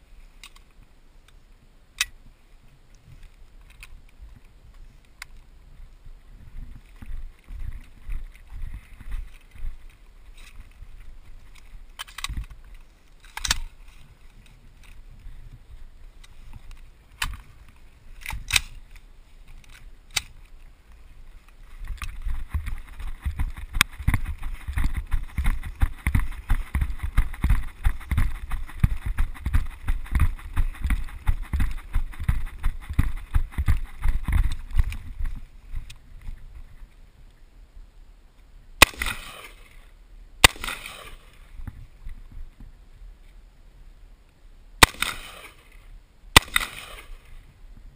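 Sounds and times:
footsteps on dirt: 6.4s - 12.7s, 21.3s - 36.8s
sharp clicks: 11.5s - 13.8s, 21.9s - 36.0s, 44.8s - 45.5s
gear jolting against camera: 21.7s - 35.9s.

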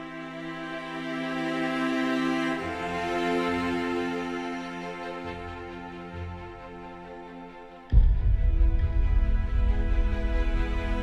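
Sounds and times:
loud deep beat: 7.9s - 11.0s.

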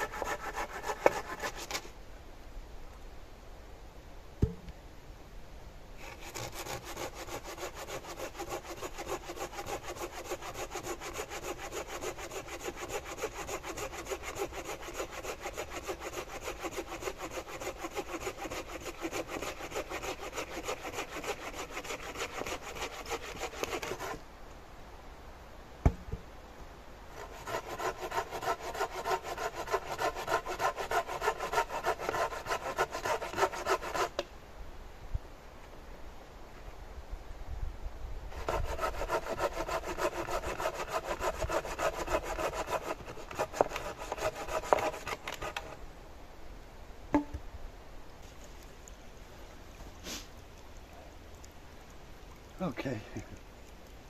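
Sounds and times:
hand saw cutting wood: 0.0s - 1.9s, 6.0s - 24.2s, 27.2s - 34.2s, 38.3s - 45.8s.

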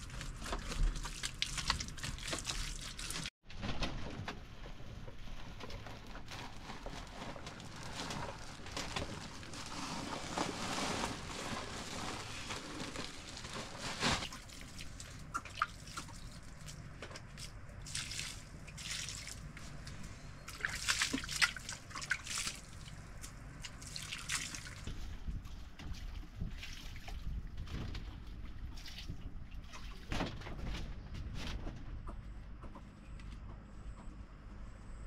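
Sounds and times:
water sloshing and trickling: 0.0s - 3.3s, 4.6s - 30.9s
water splashes: 0.0s - 3.3s, 17.8s - 19.6s, 20.5s - 25.1s.

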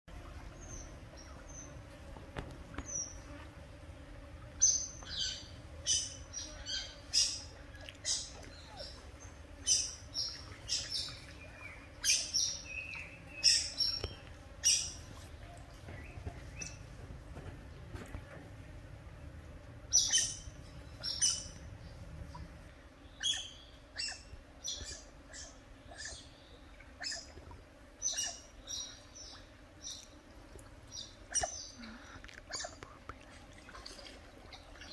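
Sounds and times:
otters chirping: 4.6s - 16.9s, 19.9s - 21.6s, 23.2s - 26.3s, 31.0s - 33.0s.

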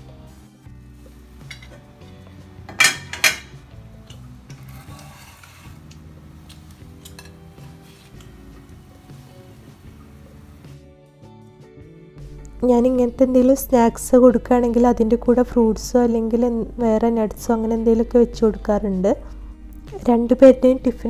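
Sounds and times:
faint background music: 0.0s - 21.0s
metal lid clanking on pan: 1.4s - 1.8s, 2.7s - 5.7s, 7.0s - 7.4s.

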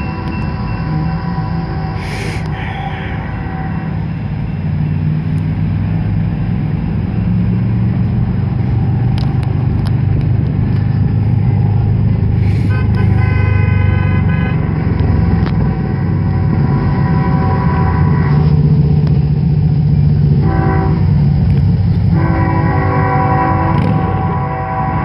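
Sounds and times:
multi-tone train horn: 0.0s - 4.6s, 12.4s - 19.1s, 20.3s - 25.0s
diesel locomotives rumbling: 0.0s - 25.0s.

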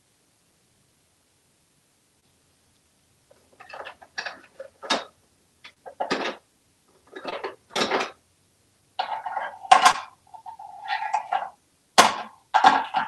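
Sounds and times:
plastic blocks clattering: 3.3s - 8.2s, 9.0s - 13.0s.

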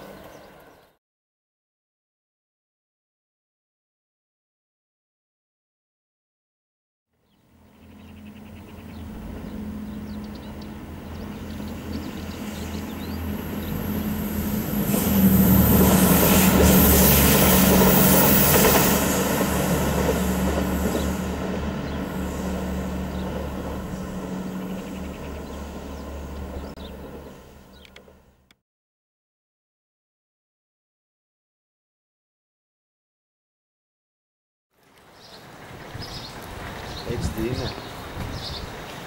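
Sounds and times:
railcar engine drone: 0.0s - 0.9s, 7.2s - 28.6s, 34.8s - 39.0s
wheel-on-rail noise: 7.4s - 28.6s, 34.8s - 39.0s.

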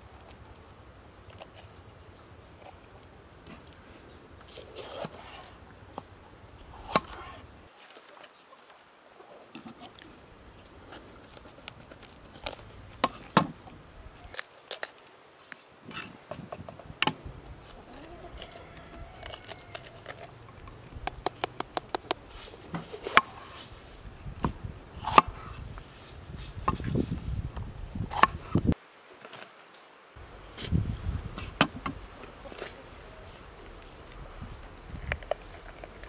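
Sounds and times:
peppers crunching: 4.4s - 5.6s, 10.8s - 13.4s, 14.2s - 15.0s, 17.5s - 23.7s, 32.2s - 36.0s.

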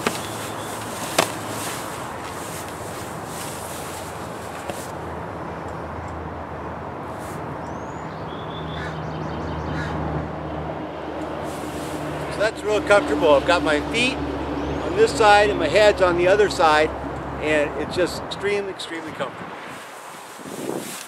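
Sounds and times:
hammock fabric rustling: 0.0s - 5.0s, 7.1s - 7.5s, 11.3s - 12.4s, 19.6s - 21.0s
high bird-like chirp: 0.2s - 0.8s.

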